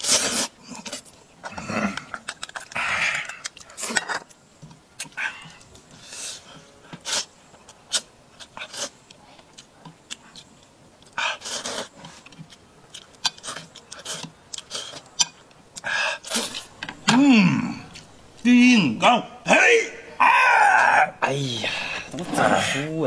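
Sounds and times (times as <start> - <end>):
man slurping noodles: 0.0 - 4.1, 15.8 - 18.0
wet mouth clicks: 1.8 - 4.4.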